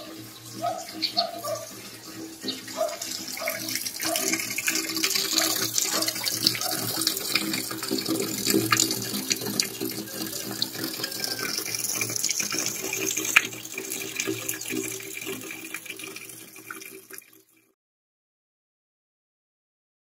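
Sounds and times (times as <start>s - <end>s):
water running from tap: 0.0s - 17.7s.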